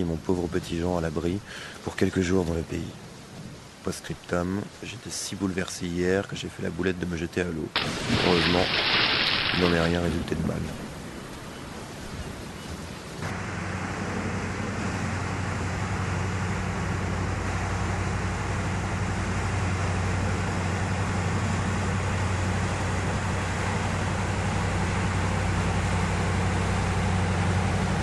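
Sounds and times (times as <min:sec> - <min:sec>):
water rushing from bow wave: 0:07.7 - 0:28.0
barge diesel engine droning: 0:13.2 - 0:28.0.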